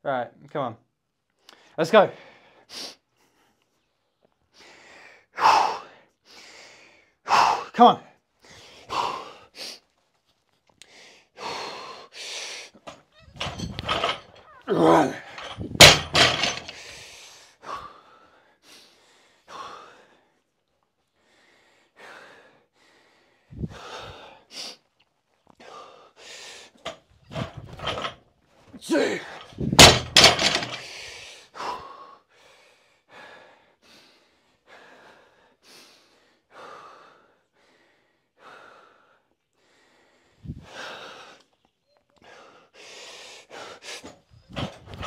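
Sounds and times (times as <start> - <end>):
hard breathing and grunts: 7.3 - 8.0, 8.8 - 9.5, 12.8 - 16.8, 28.8 - 30.9
barbell plates thudding on floor: 13.4 - 14.4, 15.3 - 16.8, 29.7 - 30.8.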